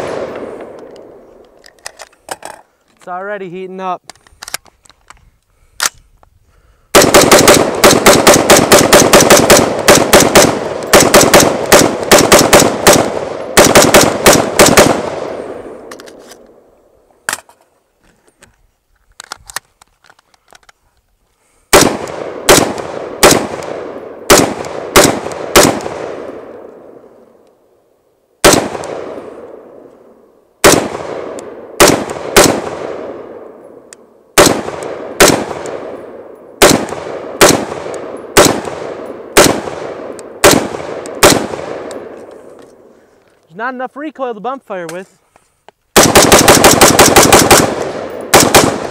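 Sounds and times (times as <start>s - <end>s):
rifle gunshots with echo: 0.0s - 1.2s, 6.9s - 15.9s, 21.7s - 27.0s, 28.4s - 29.8s, 30.6s - 33.6s, 34.4s - 42.2s, 46.0s - 48.9s.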